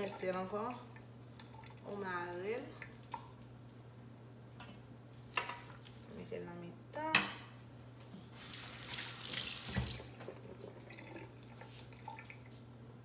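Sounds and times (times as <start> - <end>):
tap water running into bowl: 8.5 - 12.6.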